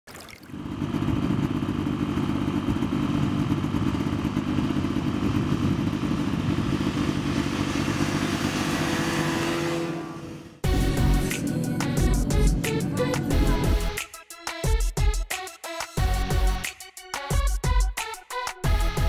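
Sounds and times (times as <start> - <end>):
snowmobile engine running: 0.5 - 14.0.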